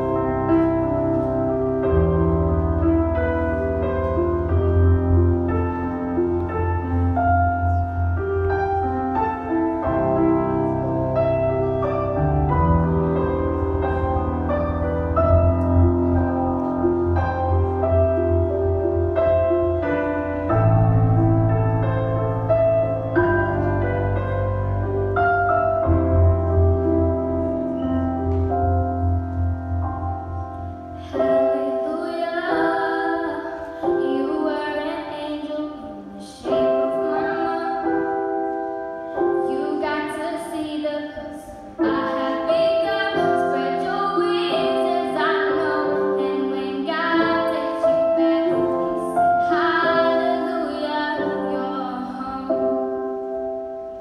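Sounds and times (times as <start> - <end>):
slow piano: 0.0 - 54.0
girl singing: 31.0 - 38.4, 39.2 - 53.0.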